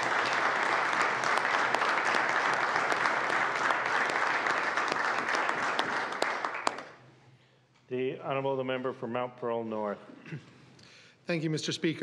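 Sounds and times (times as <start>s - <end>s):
many hands clapping: 0.0s - 7.0s.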